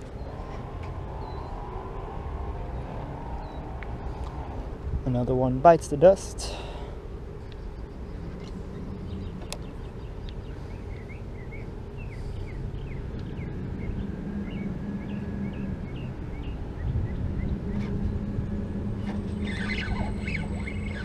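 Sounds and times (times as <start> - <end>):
bird chirping: 7.4 - 18.4, 19.3 - 21.0
low rumble: 12.1 - 21.0.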